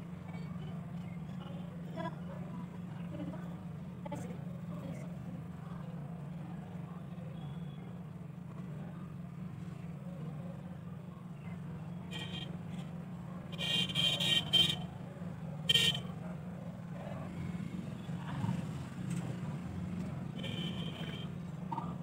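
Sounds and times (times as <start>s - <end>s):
vehicle horn honking: 12.1s - 12.6s, 13.5s - 14.8s, 15.7s - 16.1s, 20.4s - 21.4s.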